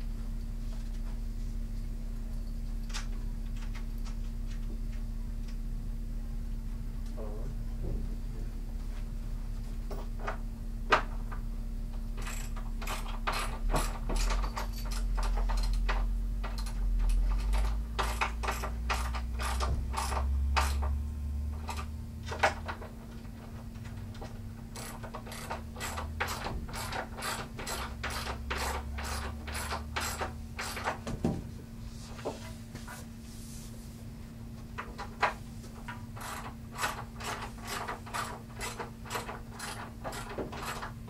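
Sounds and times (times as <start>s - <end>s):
ratchet wrenches clicking: 12.2s - 20.9s, 23.9s - 31.0s, 35.9s - 41.0s.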